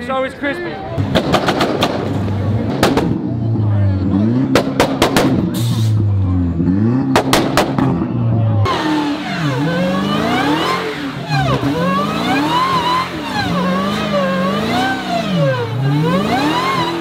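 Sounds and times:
car engine revving hard: 1.0 - 17.0
supercharger whine: 5.4 - 17.0.

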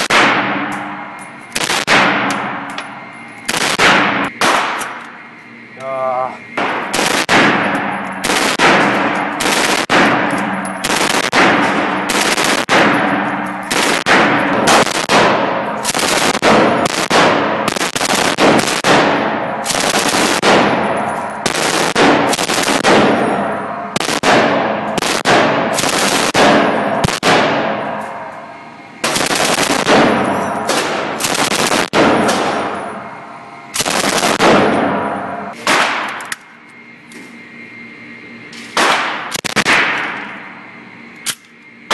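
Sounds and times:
automatic gunfire bursts: 0.0 - 0.4, 1.6 - 2.3, 3.5 - 4.9, 6.6 - 13.1, 13.7 - 20.8, 21.4 - 23.2, 24.0 - 27.6, 29.0 - 32.6, 33.8 - 34.7.

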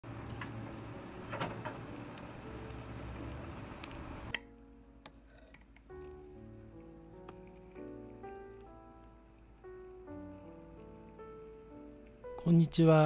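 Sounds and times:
gentle music: 0.0 - 13.0
oven door clunk: 1.3 - 1.8.

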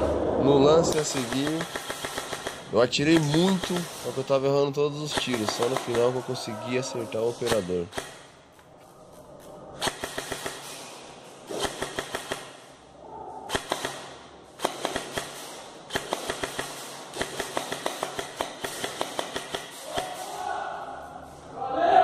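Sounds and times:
airsoft rifle full-auto bursts: 1.0 - 4.0, 9.8 - 10.7, 13.5 - 19.8.

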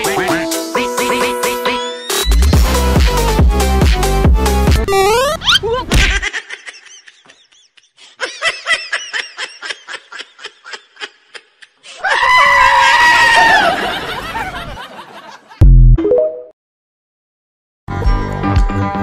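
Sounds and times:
person laughing: 5.4 - 12.3
high-pitched scream: 12.0 - 13.8.

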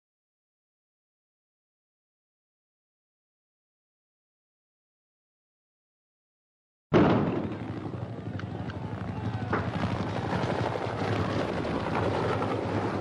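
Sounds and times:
helicopter rotor and engine: 7.0 - 13.0.

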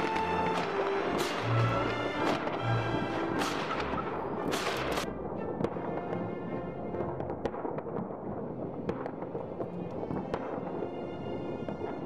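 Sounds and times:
distant fireworks bangs: 0.0 - 6.2
music playing: 0.0 - 7.3.

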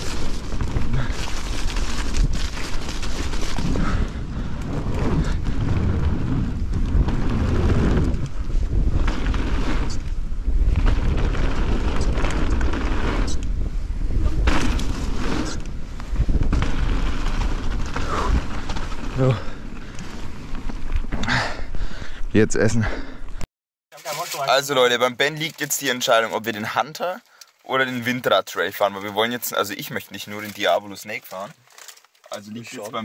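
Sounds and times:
bike tyres rolling on dirt: 0.0 - 22.0
wind buffeting microphone: 0.0 - 22.4
bike knocks and rattles: 14.4 - 21.2.

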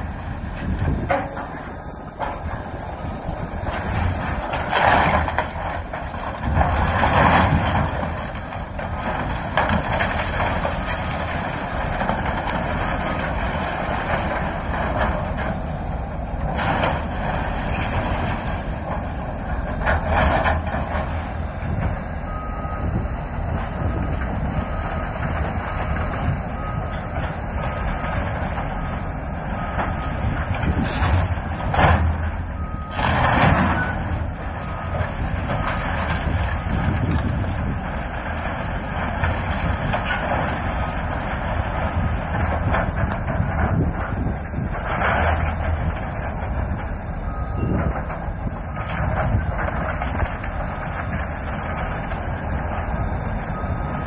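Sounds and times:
diesel excavator running: 0.0 - 54.0
debris crashing down: 3.7 - 15.1, 29.6 - 46.5.

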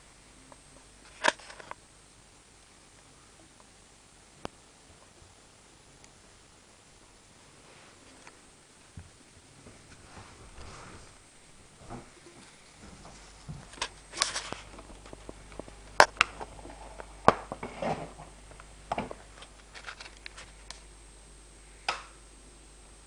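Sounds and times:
faint low hum: 0.0 - 23.0
rustling: 7.4 - 20.9.

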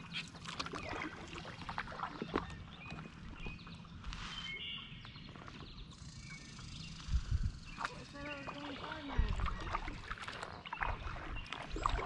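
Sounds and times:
kayak paddle dipping and dripping: 0.0 - 12.0
water splash: 7.8 - 12.0.

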